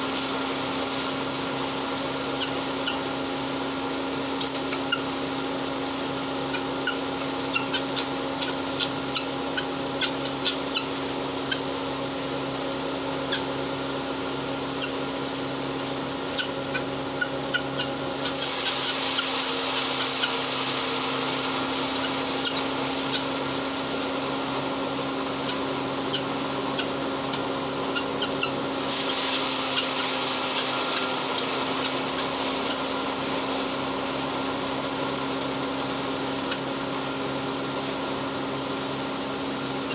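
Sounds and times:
grinding mill running: 0.0 - 39.9
rushing hiss: 18.1 - 24.7, 28.7 - 34.9.

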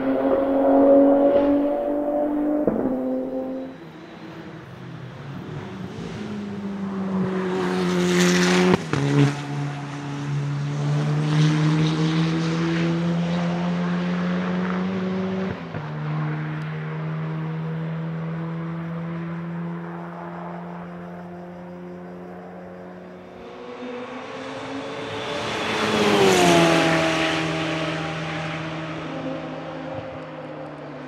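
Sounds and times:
race car engine accelerating: 0.0 - 4.0, 5.4 - 21.9.

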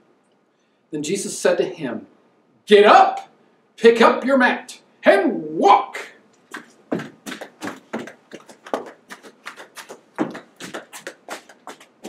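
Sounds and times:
quick footsteps on hard floor: 6.5 - 12.0.

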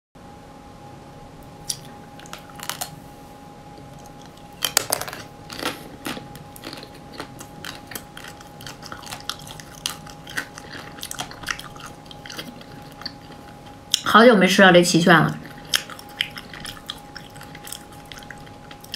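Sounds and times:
crunchy chewing: 1.4 - 3.0, 3.9 - 14.1, 15.3 - 18.9
biting crisp ice cream coating: 1.6 - 3.0, 4.0 - 14.1, 15.4 - 18.9.

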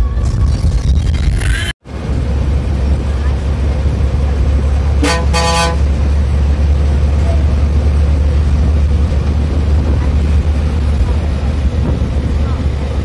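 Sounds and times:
bus engine and road noise: 0.0 - 13.0
bus horn toots: 4.9 - 6.0.

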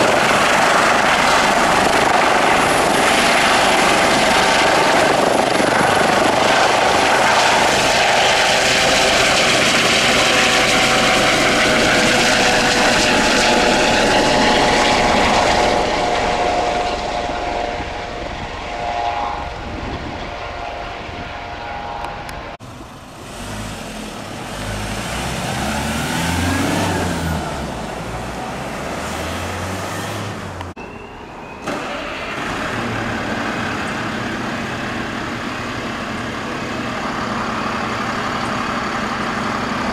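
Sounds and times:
helicopter turbine and rotor noise: 0.0 - 23.2, 30.5 - 39.9
diesel engine idling: 32.0 - 39.9.

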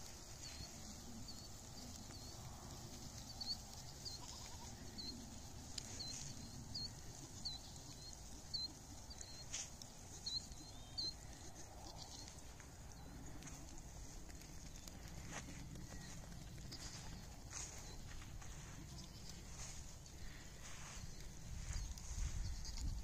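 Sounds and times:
faint animal calls: 3.1 - 13.6
bird chirping: 5.8 - 13.6.

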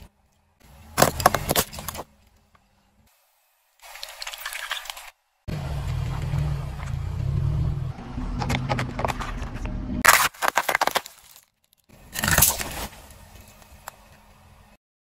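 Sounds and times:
tyre crushing small objects: 0.9 - 2.1, 8.4 - 13.6
low engine rumble: 5.3 - 10.0.

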